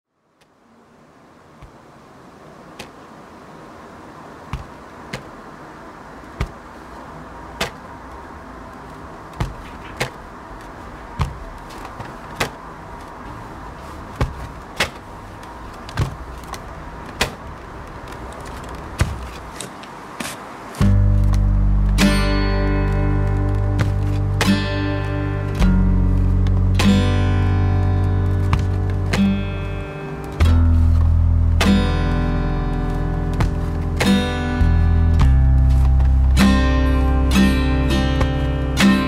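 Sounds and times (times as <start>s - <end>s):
sharp knocks: 4.5s - 5.4s, 6.3s - 6.7s, 7.6s - 7.9s, 9.3s - 10.2s, 11.1s - 12.7s, 14.1s - 15.1s, 15.8s - 17.6s, 18.9s - 24.9s, 28.4s - 29.6s, 30.3s - 32.1s, 33.3s - 36.6s.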